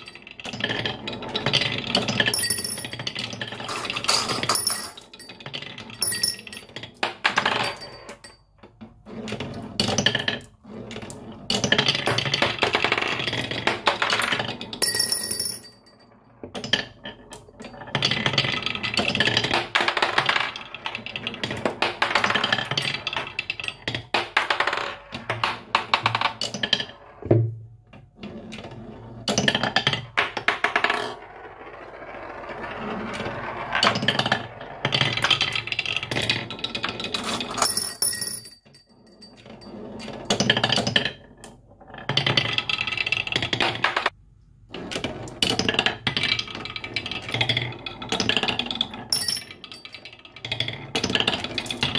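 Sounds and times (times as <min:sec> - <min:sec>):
marbles rolling on wooden tracks: 0:00.0 - 0:51.9
marbles clacking on wood: 0:16.5 - 0:27.2, 0:44.9 - 0:51.9.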